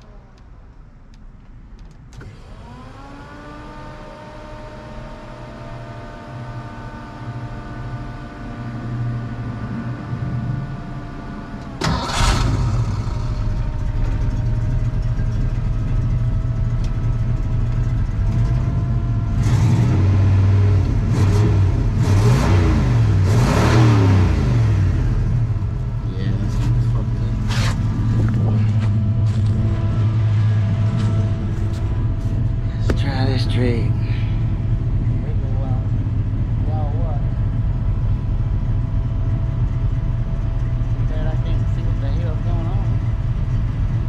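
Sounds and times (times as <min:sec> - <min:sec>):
starter whine: 0:00.0 - 0:07.7, 0:08.4 - 0:44.0
engine starting and revving: 0:02.2 - 0:04.6, 0:11.8 - 0:14.4, 0:19.3 - 0:25.5.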